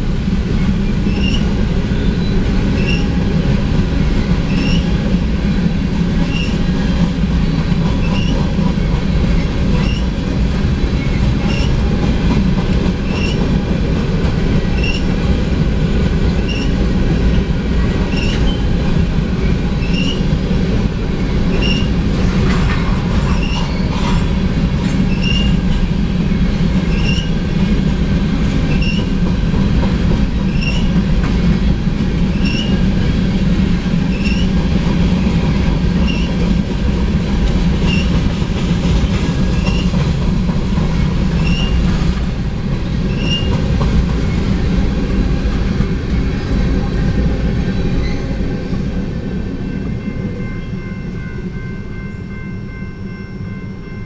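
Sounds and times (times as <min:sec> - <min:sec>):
train rumble and wheel clatter: 0:00.0 - 0:54.0
wheel squeal: 0:01.1 - 0:03.2, 0:04.5 - 0:05.0, 0:06.2 - 0:06.6, 0:08.0 - 0:08.5, 0:09.8 - 0:10.1, 0:11.0 - 0:11.7, 0:13.0 - 0:13.4, 0:14.8 - 0:15.0, 0:16.4 - 0:17.4, 0:18.1 - 0:18.7, 0:19.8 - 0:20.3, 0:21.2 - 0:22.0, 0:23.3 - 0:24.2, 0:25.1 - 0:25.6, 0:26.9 - 0:27.3, 0:28.7 - 0:29.1, 0:30.5 - 0:30.9, 0:32.2 - 0:32.8, 0:34.1 - 0:34.8, 0:36.0 - 0:36.4, 0:37.8 - 0:38.2, 0:39.6 - 0:40.0, 0:41.4 - 0:41.8, 0:43.1 - 0:43.9, 0:47.8 - 0:48.3
crossing bell ringing: 0:48.2 - 0:54.0.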